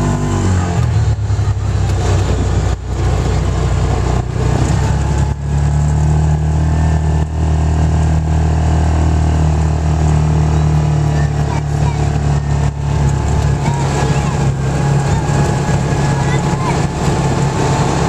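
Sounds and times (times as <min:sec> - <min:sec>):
engine running under throttle: 0:00.0 - 0:18.0.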